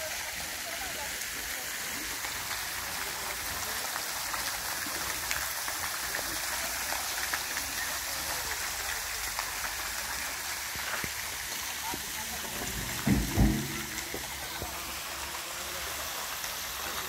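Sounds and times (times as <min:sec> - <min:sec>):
fountain water splashing: 0:00.0 - 0:17.0.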